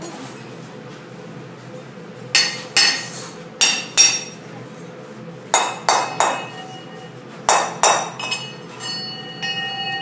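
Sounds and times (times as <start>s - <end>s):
bell ringing: 8.3s - 10.0s.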